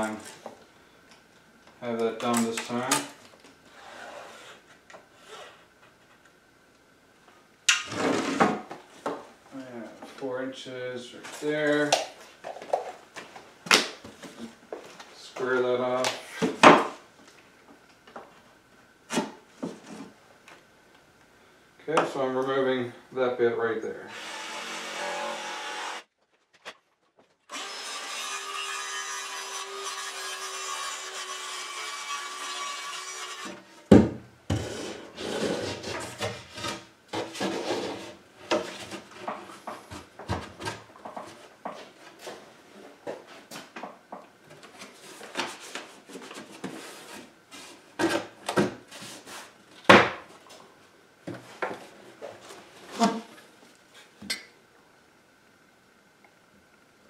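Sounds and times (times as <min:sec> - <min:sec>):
power saw cutting plywood: 0:24.1 - 0:26.1, 0:27.5 - 0:33.8.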